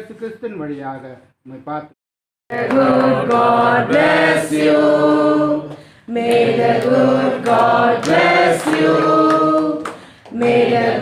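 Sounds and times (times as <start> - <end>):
group singing unaccompanied: 2.5 - 11.0.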